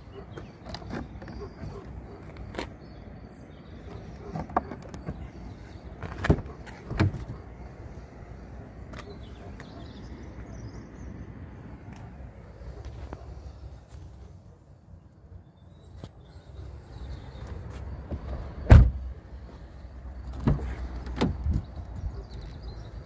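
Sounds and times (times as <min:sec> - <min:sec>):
car door clunks: 0:06.0 - 0:07.4, 0:18.1 - 0:19.1, 0:20.3 - 0:21.7.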